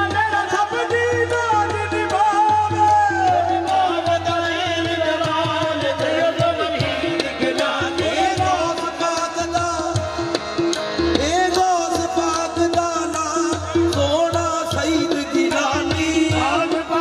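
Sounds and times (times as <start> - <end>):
person singing through a microphone: 11.2 - 17.0.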